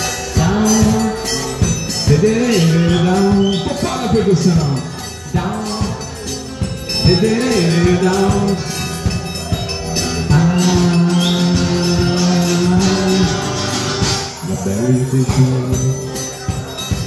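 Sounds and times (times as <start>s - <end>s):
drums and hand percussion: 0.0s - 17.0s
person singing slow melody: 0.0s - 17.0s.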